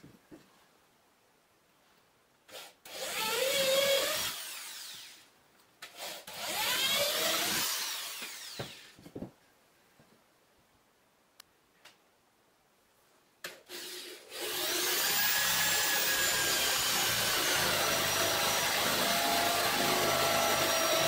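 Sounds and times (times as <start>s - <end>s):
cordless drill boring into wood: 2.5s - 8.9s, 13.6s - 21.0s.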